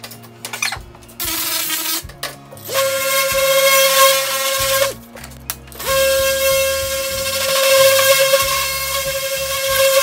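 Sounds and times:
background music: 0.0s - 10.0s
electric orbital sander whining: 5.8s - 10.0s.

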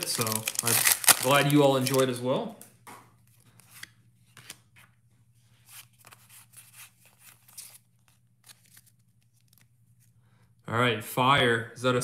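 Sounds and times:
trading cards clicking and rustling: 0.0s - 2.2s
low steady hum: 0.0s - 12.0s.

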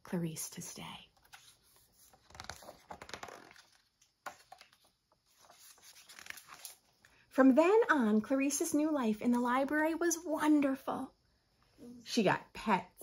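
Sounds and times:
paper pages rustling: 1.1s - 7.1s.

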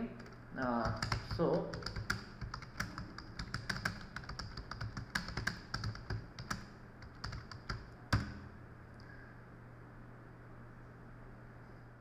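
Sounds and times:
computer keyboard typing: 0.2s - 8.5s.

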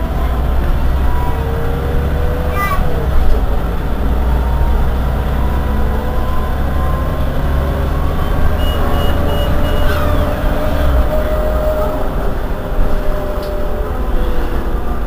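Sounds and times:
bus diesel engine rumbling: 0.0s - 15.0s
short high beeps: 8.2s - 10.2s.

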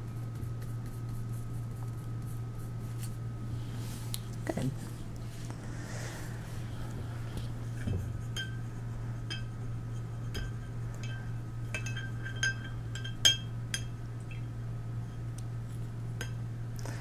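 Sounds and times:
brush clinking against glass jar: 10.3s - 13.9s.

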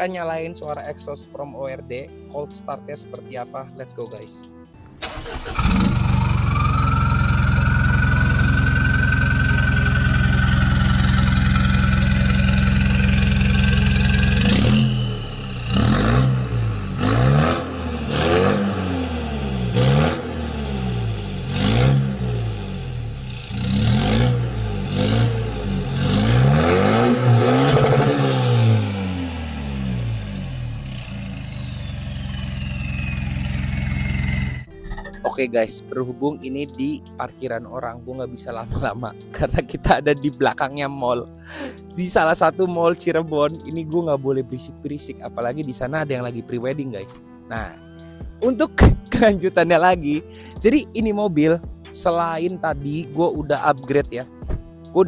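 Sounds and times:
diesel engine starting and revving: 4.8s - 35.0s.

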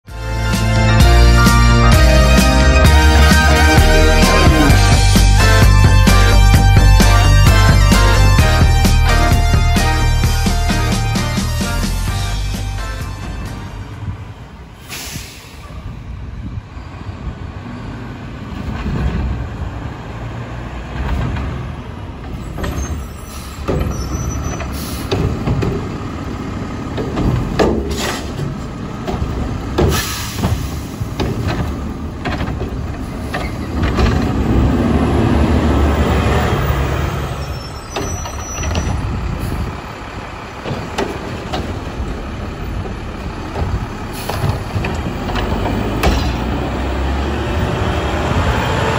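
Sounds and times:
garbage truck engine running: 0.1s - 48.9s
air brakes hissing: 14.7s - 16.0s, 22.4s - 25.4s, 27.8s - 28.4s, 29.8s - 31.1s, 37.3s - 39.8s, 44.0s - 44.6s.

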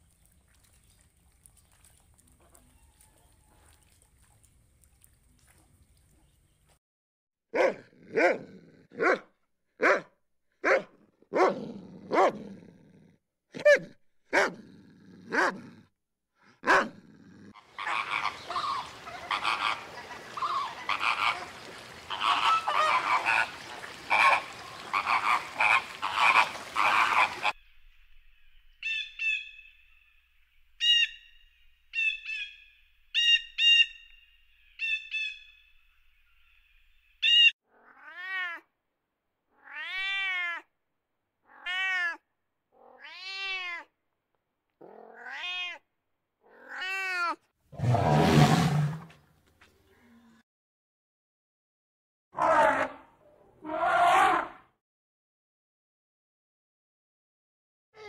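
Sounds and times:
dog barking: 7.5s - 12.4s, 13.6s - 14.6s, 15.3s - 15.6s, 16.6s - 17.0s
flamingos honking: 17.7s - 27.5s.

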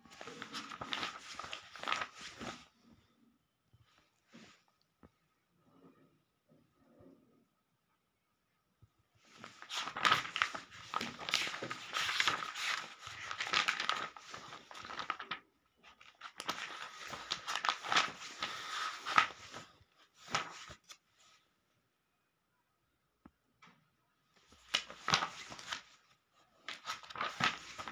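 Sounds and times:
book pages flipping: 0.0s - 2.7s, 9.2s - 21.0s, 24.4s - 27.9s.

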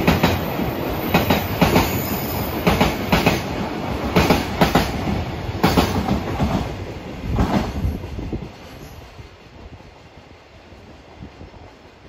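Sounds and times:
train wheels clattering over rail joints: 0.0s - 8.8s
train rumble: 0.0s - 12.0s.

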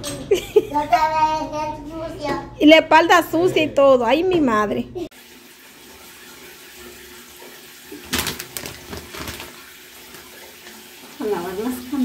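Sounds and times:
tap water running into sink: 5.1s - 12.0s
plastic bag crinkling: 8.1s - 10.3s.

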